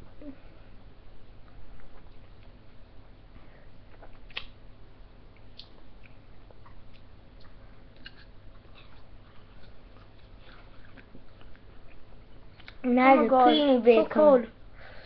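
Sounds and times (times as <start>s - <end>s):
low steady hum: 0.0s - 15.0s
mouth noises eating: 3.8s - 4.6s.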